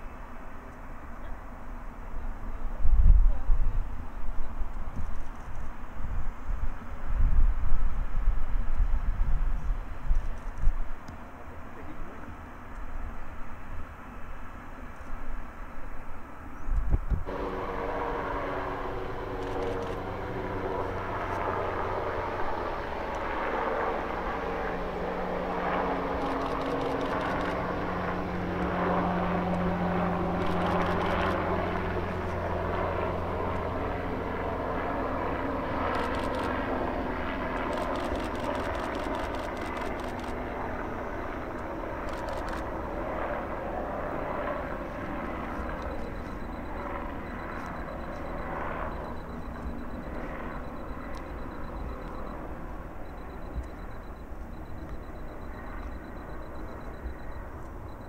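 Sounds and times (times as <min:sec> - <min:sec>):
helicopter flying past: 0:17.2 - 0:58.0.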